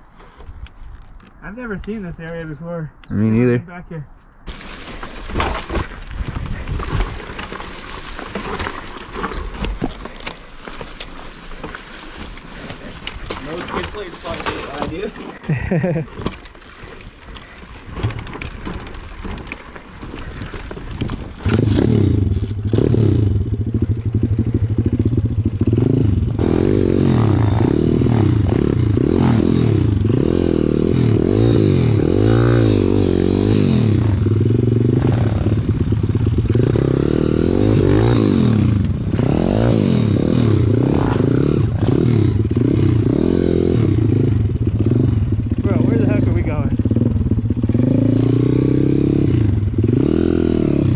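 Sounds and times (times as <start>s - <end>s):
clattering and scraping: 4.5s - 22.7s
motorbike engine revving: 21.4s - 50.9s.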